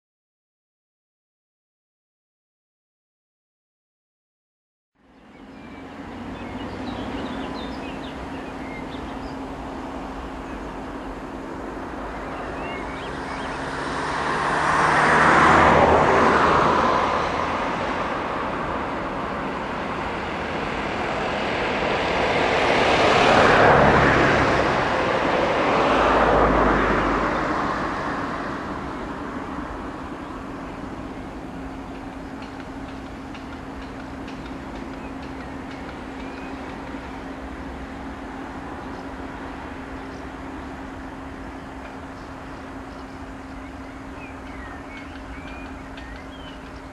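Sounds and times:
diesel locomotive hauling freight train: 0:05.2 - 0:46.9
rushing noise: 0:05.9 - 0:35.0.

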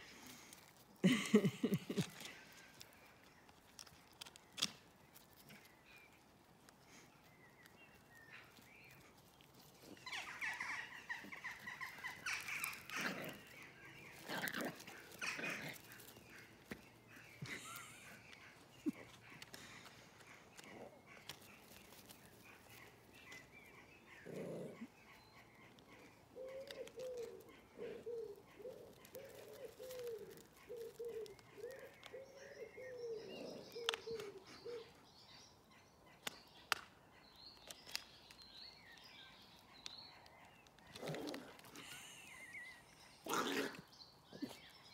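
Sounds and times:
faint birdsong: 0:00.0 - 0:44.9
pigeon cooing: 0:26.0 - 0:35.0.

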